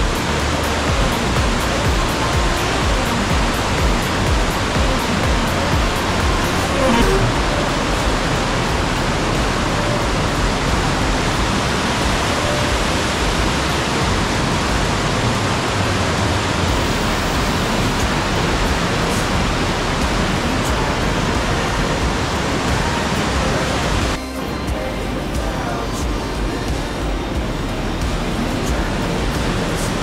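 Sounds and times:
stream rushing down rocks: 7.4s - 30.0s.

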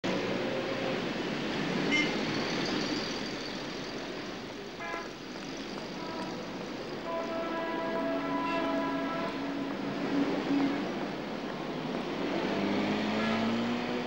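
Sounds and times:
city street traffic: 0.0s - 14.0s
car horn honking: 1.9s - 2.2s, 4.8s - 5.1s, 7.0s - 9.6s.

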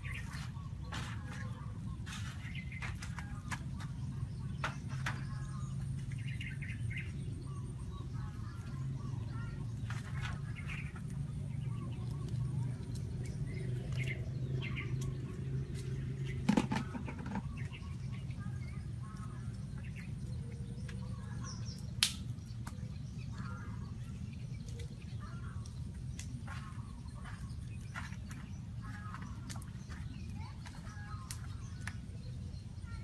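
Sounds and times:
sharp clicks: 22.0s - 22.8s.

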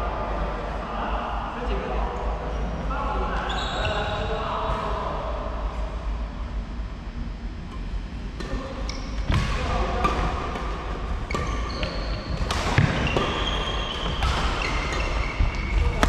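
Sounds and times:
low hall hum: 0.0s - 16.0s
rackets hitting shuttlecock: 8.4s - 16.0s.

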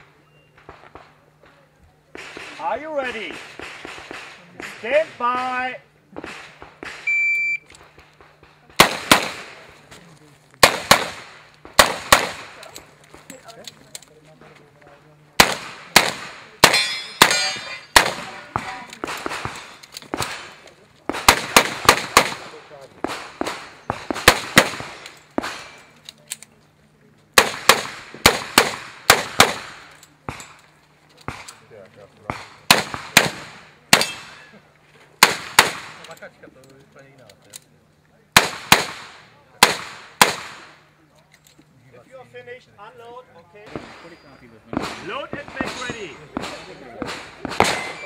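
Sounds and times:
handgun shots with echo: 44.7s - 48.0s.

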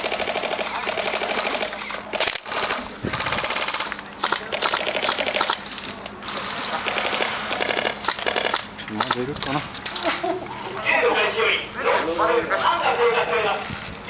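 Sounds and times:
airsoft rifle full-auto bursts: 0.0s - 8.7s.

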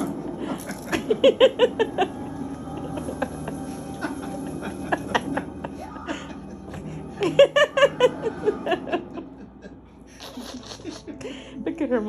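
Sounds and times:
person laughing: 0.4s - 11.4s.

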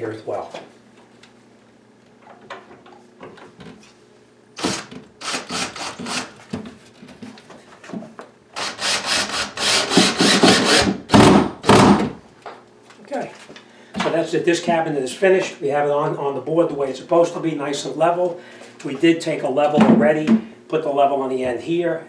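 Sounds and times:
cordless drill driving screws: 4.6s - 6.3s, 8.6s - 11.0s
screws grinding into wood: 4.6s - 6.4s, 8.6s - 11.1s.

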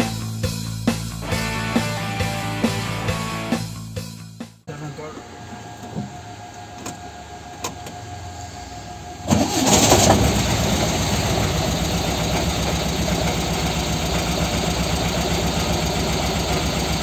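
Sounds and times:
engine starting and idling: 6.9s - 17.0s.

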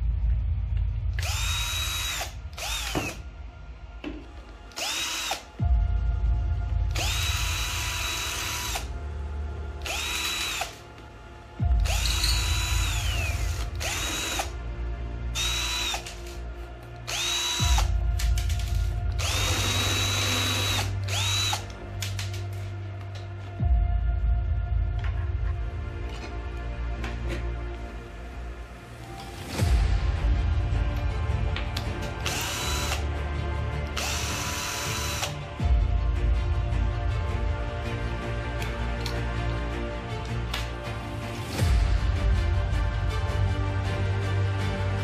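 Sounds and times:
cordless drill motor whine: 1.2s - 3.2s, 4.7s - 5.5s, 7.0s - 8.9s, 9.8s - 10.8s, 11.8s - 14.5s, 15.4s - 16.4s, 17.1s - 17.9s, 19.2s - 21.7s, 32.2s - 33.0s, 34.0s - 35.3s.

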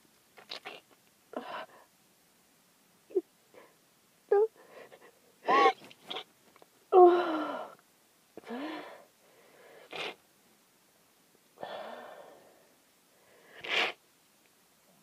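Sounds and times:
person sneezing: 5.5s - 6.2s.

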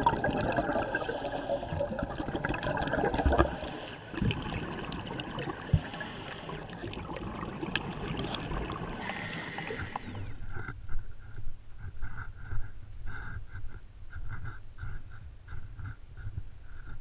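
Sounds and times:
muffled underwater hiss: 0.0s - 13.7s.

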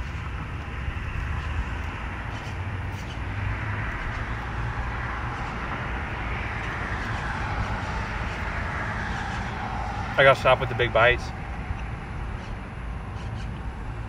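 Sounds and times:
road traffic rushing: 0.0s - 14.0s.

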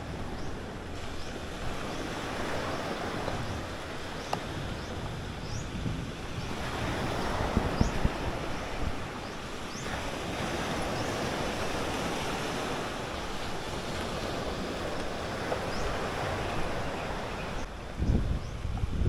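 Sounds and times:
small waves washing onto rocks: 0.8s - 16.8s.

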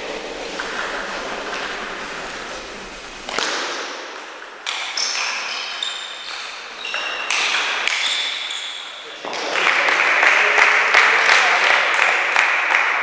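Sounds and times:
shoes squeaking: 0.0s - 3.6s, 4.2s - 9.3s.

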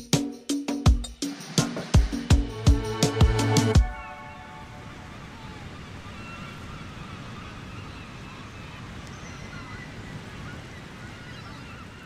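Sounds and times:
sea surf: 1.2s - 12.0s
bird calls: 3.8s - 12.0s.

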